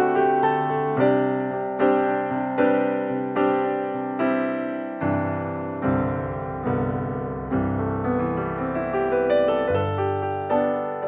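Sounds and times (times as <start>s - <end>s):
slow piano music: 0.0s - 11.0s.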